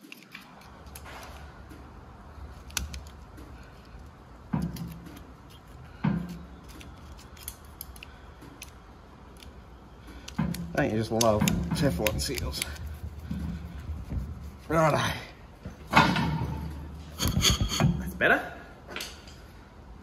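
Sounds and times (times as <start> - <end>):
small clicks and scrapes of hands: 0.0 - 14.8.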